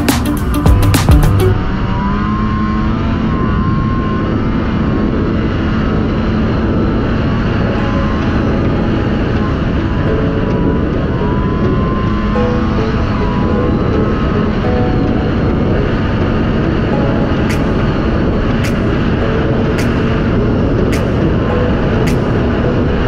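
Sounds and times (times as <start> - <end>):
faint wavering whine: 0.0 - 23.0
snowmobile engine running: 0.0 - 23.0.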